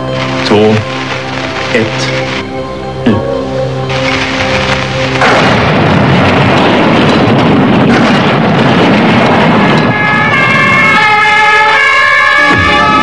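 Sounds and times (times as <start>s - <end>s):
music with held notes: 0.0s - 6.9s
dynamite explosion rumbling: 3.9s - 13.0s.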